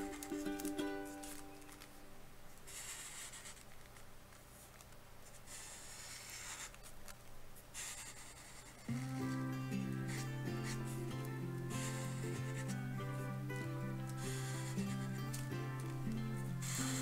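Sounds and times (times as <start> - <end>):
marker scratching on paper: 2.6 - 4.0, 4.6 - 7.0, 7.6 - 17.0
background music: 8.9 - 17.0.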